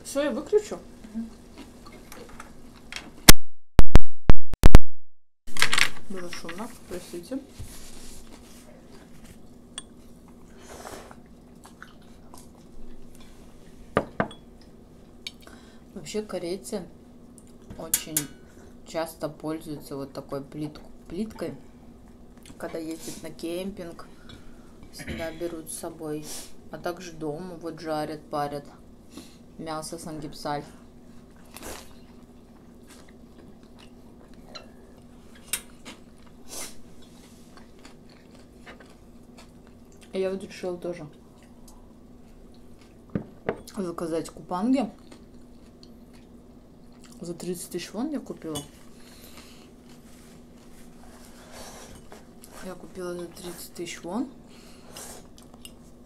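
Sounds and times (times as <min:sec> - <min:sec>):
faint steady hum: 0:05.5 - 0:56.0
chewing noodles: 0:11.1 - 0:13.0, 0:31.2 - 0:40.2, 0:44.9 - 0:47.2.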